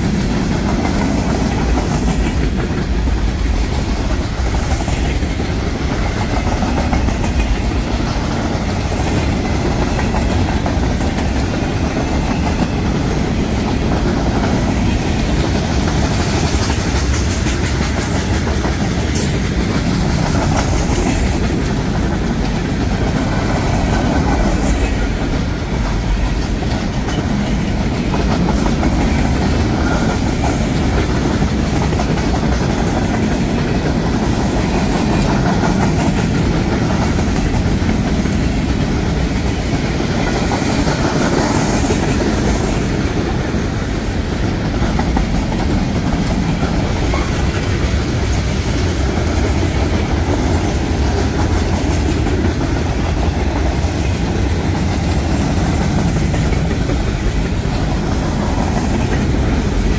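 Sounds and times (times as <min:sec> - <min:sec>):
train rumbling past: 0:00.0 - 0:59.9.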